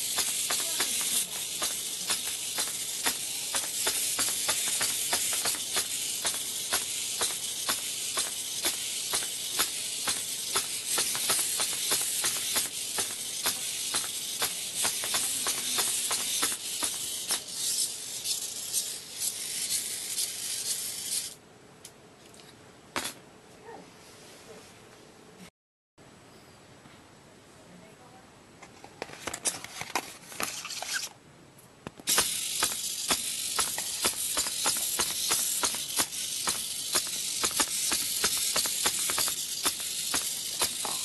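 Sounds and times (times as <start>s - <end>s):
plastic legs tapping on board: 0.0s - 17.5s, 31.8s - 41.0s
high-pitched servo whine: 0.0s - 21.4s.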